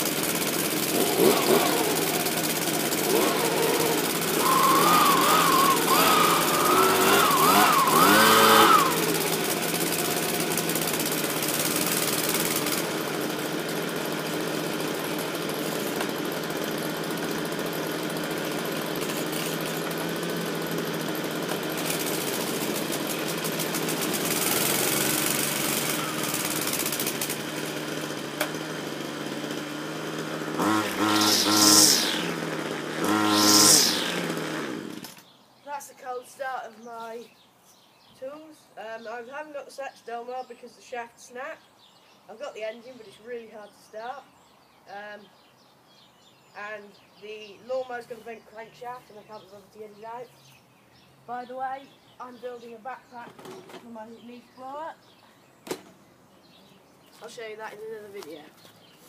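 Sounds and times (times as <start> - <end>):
leaf blower engine revving and idling: 0.0 - 35.3, 56.5 - 59.0.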